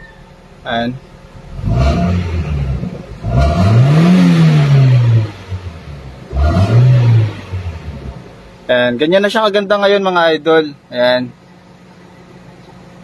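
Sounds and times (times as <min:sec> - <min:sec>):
car engine revving: 0:01.2 - 0:09.4.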